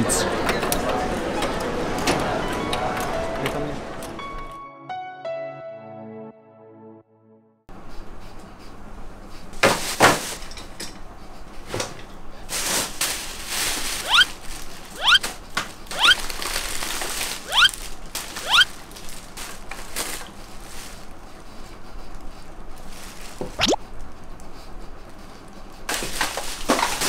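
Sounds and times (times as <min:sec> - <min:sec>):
plastic bag rustling: 0:12.5 - 0:15.4, 0:16.2 - 0:21.1, 0:25.9 - 0:27.0
rising whistle-like chirps: 0:14.0 - 0:14.3, 0:15.0 - 0:15.2, 0:16.0 - 0:16.2, 0:17.5 - 0:17.8, 0:18.4 - 0:18.7.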